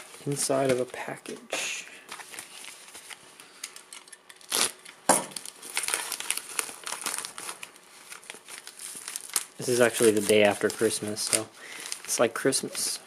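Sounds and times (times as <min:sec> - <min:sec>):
plastic mailer crinkling: 0:00.0 - 0:01.2, 0:02.1 - 0:12.7
sharp plastic crackles: 0:02.1 - 0:12.2.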